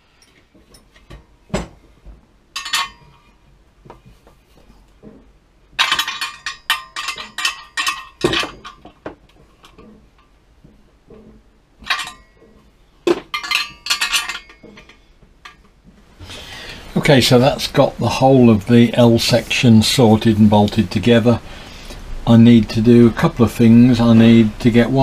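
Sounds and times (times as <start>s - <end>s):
metal bars clinking together: 2.6s - 3.4s, 5.8s - 10.3s, 11.1s - 15.8s
steel bolt sliding through metal: 11.1s - 15.7s.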